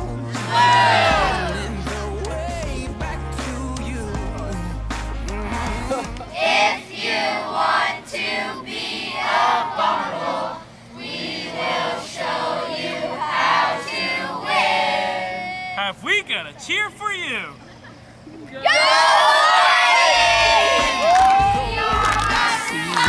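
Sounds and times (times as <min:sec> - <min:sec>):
children chanting a cheer: 0:00.4 - 0:01.6, 0:18.6 - 0:23.0.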